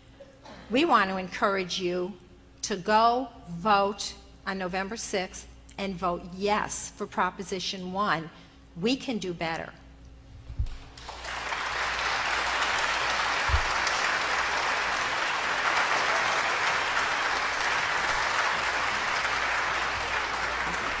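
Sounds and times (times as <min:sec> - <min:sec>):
audience applauding: 0:10.9 - 0:21.0.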